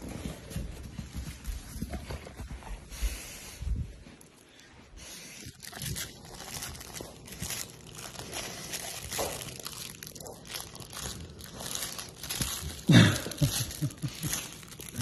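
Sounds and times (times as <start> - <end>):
dog chewing toy: 5.1 - 12.9.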